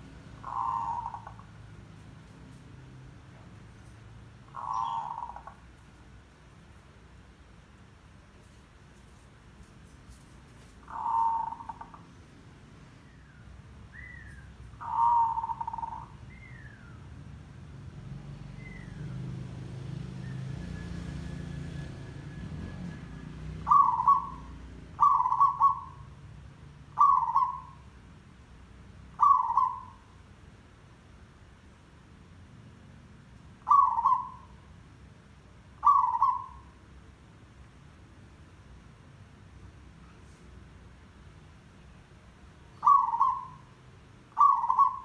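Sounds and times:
dove cooing: 0:00.4 - 0:01.6, 0:04.5 - 0:05.6, 0:10.8 - 0:12.1, 0:14.0 - 0:16.6, 0:23.6 - 0:26.2, 0:27.0 - 0:27.8, 0:29.2 - 0:30.1, 0:33.6 - 0:34.6, 0:35.8 - 0:36.8, 0:42.8 - 0:45.0.

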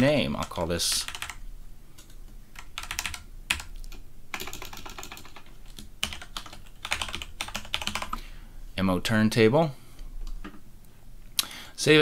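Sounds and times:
typing on keyboard: 0:00.4 - 0:01.4, 0:02.0 - 0:08.2.

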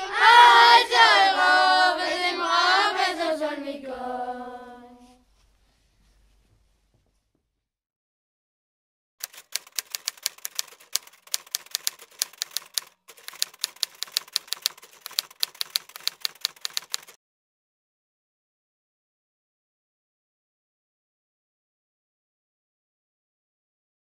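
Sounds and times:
typewriter keystroke clicks: 0:09.2 - 0:17.2.

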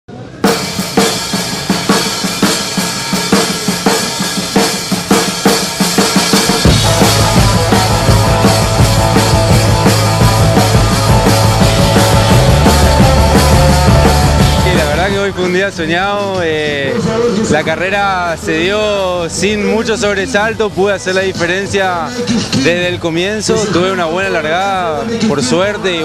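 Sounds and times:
rock band playing: 0:00.3 - 0:19.4
rock drum beat: 0:00.4 - 0:16.7.

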